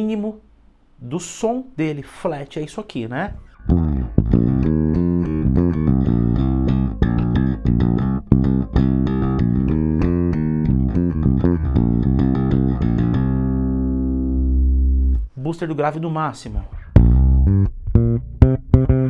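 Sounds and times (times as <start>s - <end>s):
electric bass played fingerstyle: 3.3s - 15.4s, 16.6s - 19.0s.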